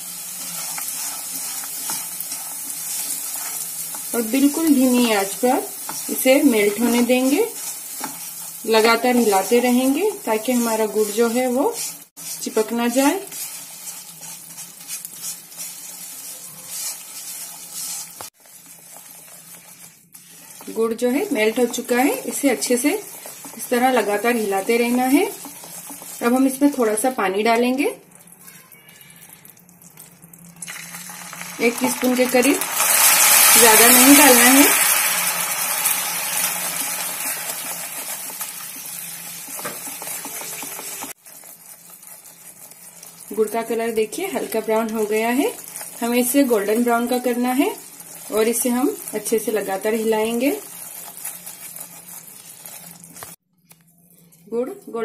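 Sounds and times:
spatula scraping a pan: 0.0 - 26.9, 35.7 - 43.2, 50.6 - 53.4
sugar sizzling: 0.0 - 55.0.

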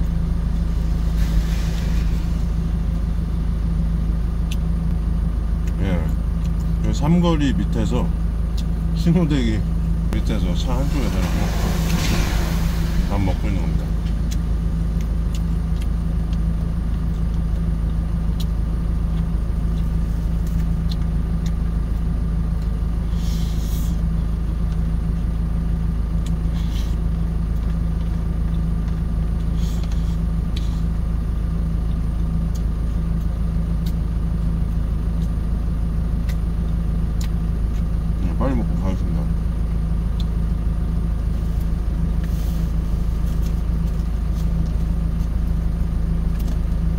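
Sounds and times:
truck engine idling: 0.0 - 46.9
brief hisses: 10.8 - 14.0.

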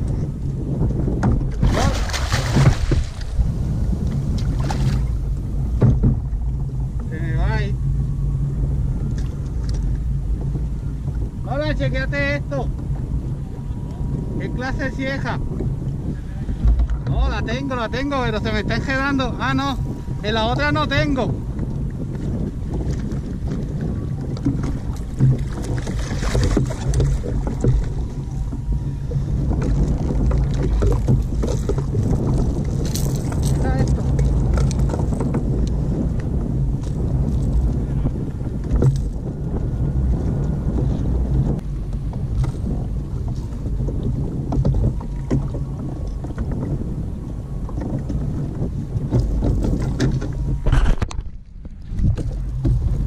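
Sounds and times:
water slapping against hull: 0.0 - 53.0
wind buffeting microphone: 0.0 - 53.0.

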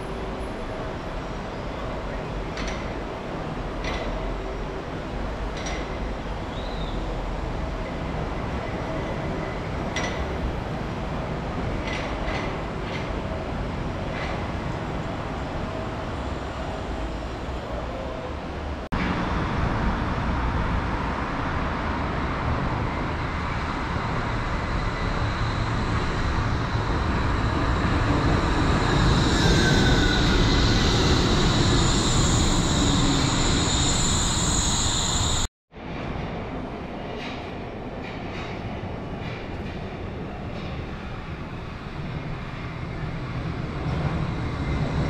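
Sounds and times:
steel wheels on rail: 2.1 - 19.5, 21.5 - 35.5
high whine: 22.8 - 35.5.

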